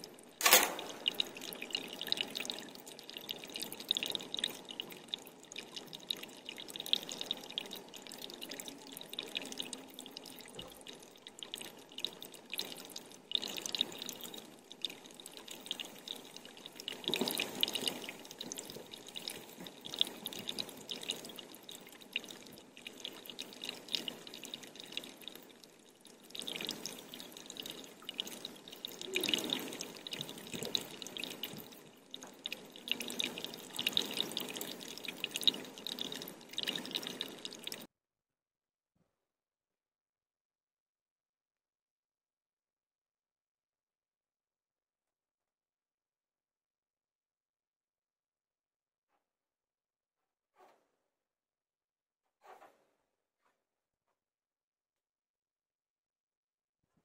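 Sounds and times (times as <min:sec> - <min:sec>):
water dripping: 0:00.0 - 0:37.9.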